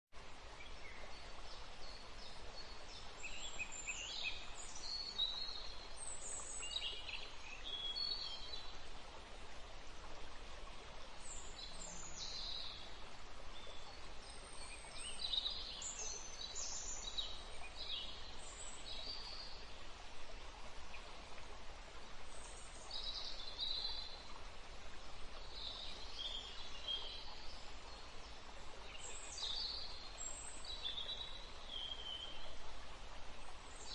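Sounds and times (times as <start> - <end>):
steady background hiss: 0.2 - 33.9.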